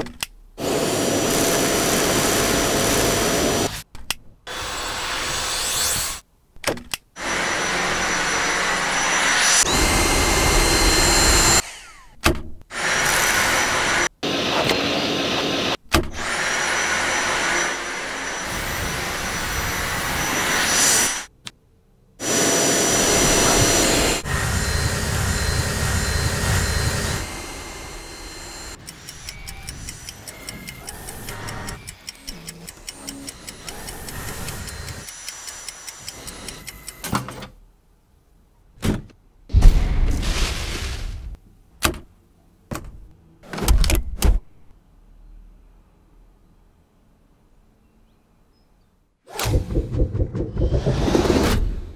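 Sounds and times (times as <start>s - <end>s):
vacuum cleaner motor whine: 0.6s - 3.7s, 7.2s - 12.0s, 12.8s - 21.2s, 22.2s - 29.7s.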